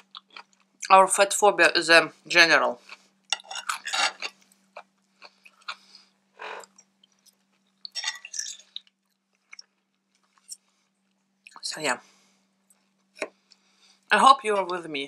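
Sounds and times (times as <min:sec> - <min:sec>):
person chewing food: 0:00.0 - 0:00.9, 0:02.8 - 0:11.6, 0:12.6 - 0:14.1.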